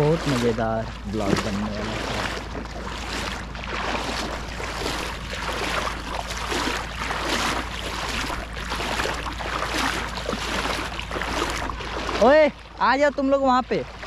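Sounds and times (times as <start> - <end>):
footsteps splashing in shallow water: 0.0 - 14.0.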